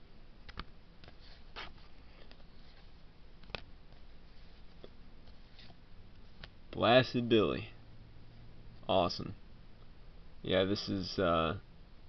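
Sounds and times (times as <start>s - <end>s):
faint low hum: 0.0s - 12.0s
cards sliding while shuffled: 1.0s - 5.8s.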